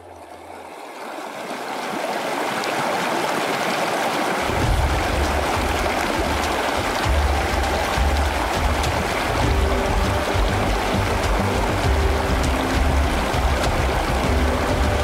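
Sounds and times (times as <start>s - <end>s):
rushing water: 0.0s - 15.0s
deep low rumble: 4.5s - 15.0s.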